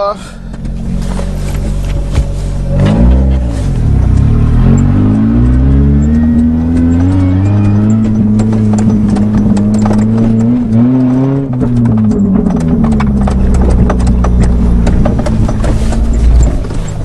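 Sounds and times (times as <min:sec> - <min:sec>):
car engine running: 0:00.0 - 0:17.0
rapid clicks and knocks: 0:04.0 - 0:17.0.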